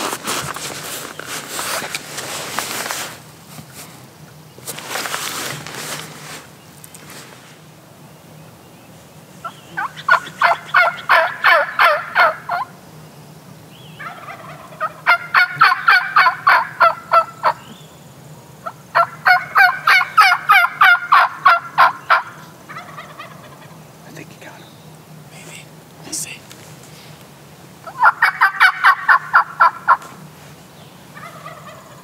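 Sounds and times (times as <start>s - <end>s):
turkey gobbling: 9.4s - 12.8s, 14.0s - 17.7s, 18.6s - 23.8s, 27.8s - 30.1s, 31.1s - 32.0s.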